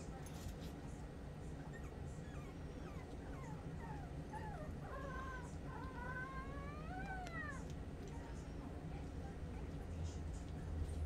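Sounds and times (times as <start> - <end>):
puppy whining into a howl: 1.6 - 7.7.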